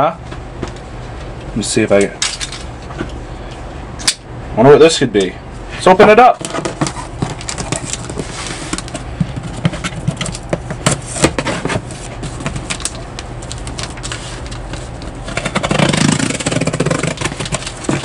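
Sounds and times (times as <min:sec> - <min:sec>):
steady low hum: 0:00.0 - 0:18.0
plastic pouch rustling: 0:06.4 - 0:11.2, 0:11.8 - 0:18.0
fingers scraping cardboard: 0:15.3 - 0:18.0.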